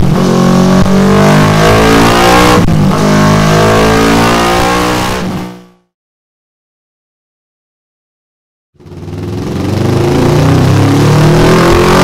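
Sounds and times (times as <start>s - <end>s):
motorcycle engine revving high: 0.0s - 5.8s, 8.8s - 12.0s.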